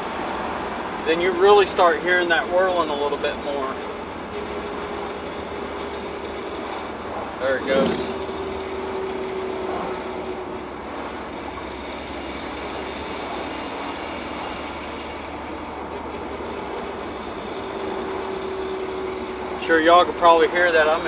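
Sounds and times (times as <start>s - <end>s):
truck cab road noise: 0.0s - 21.0s.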